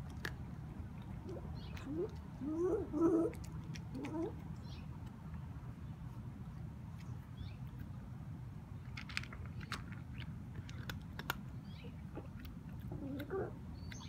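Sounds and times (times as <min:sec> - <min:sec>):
kitten crunching dry kibble: 0:00.0 - 0:02.5, 0:03.3 - 0:14.0
kitten wavering low sounds: 0:01.2 - 0:04.4.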